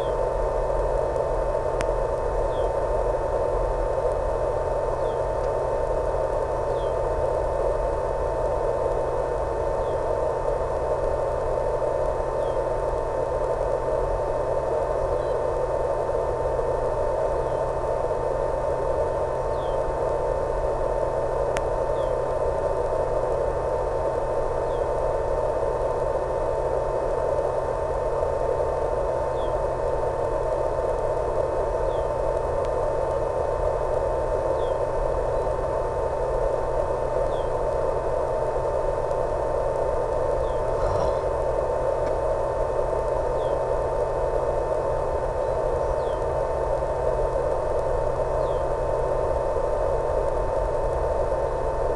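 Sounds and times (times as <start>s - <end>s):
electronic hiss and hum: 0.0s - 51.9s
constant high tone: 40.4s - 41.5s
faint short chirps: 40.5s - 41.3s.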